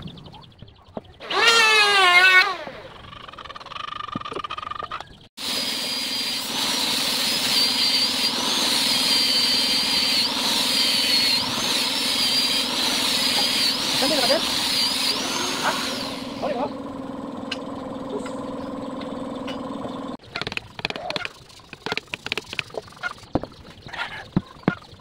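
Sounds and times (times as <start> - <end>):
angle grinder sanding wood: 5.4 - 16.8.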